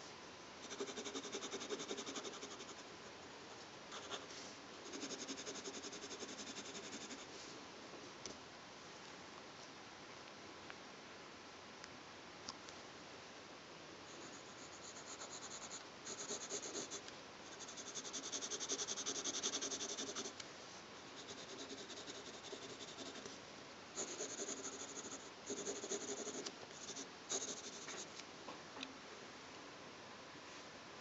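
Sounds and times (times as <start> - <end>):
pencil scratching on paper: 0.6 - 2.9, 3.9 - 4.3, 4.9 - 7.3, 14.1 - 20.4, 21.2 - 23.3, 24.0 - 28.1.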